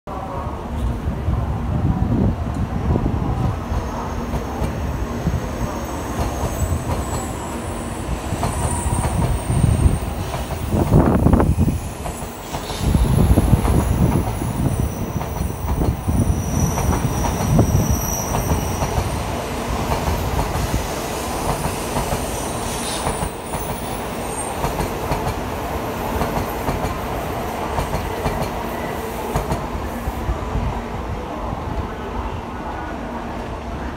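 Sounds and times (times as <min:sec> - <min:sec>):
train wheels rumbling and clattering: 0:04.2 - 0:29.9.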